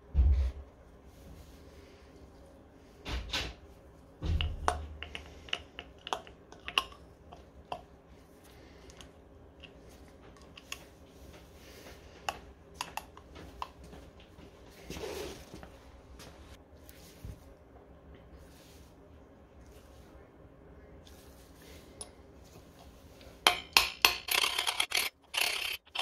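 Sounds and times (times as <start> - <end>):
small metal parts clicking: 23.8 - 26.0.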